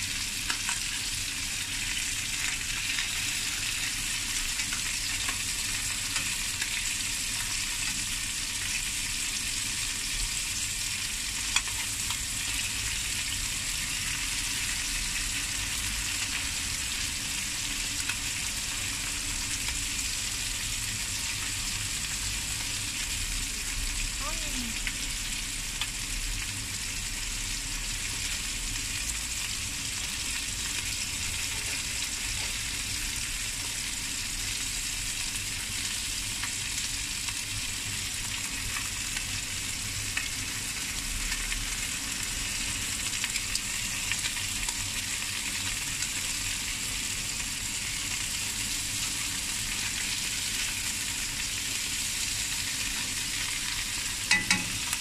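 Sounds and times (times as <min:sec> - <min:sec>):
fish sizzling in hot oil: 0:00.0 - 0:55.0
metal tongs clicking on pan: 0:11.5 - 0:12.2, 0:54.3 - 0:55.0.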